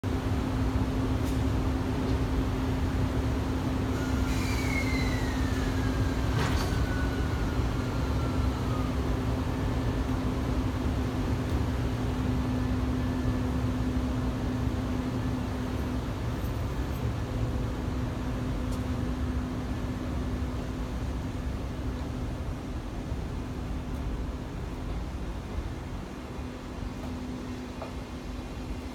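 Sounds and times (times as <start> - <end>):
train rolling rumble: 0.0 - 28.9
high squeal: 3.9 - 9.1
constant hum: 6.4 - 28.9.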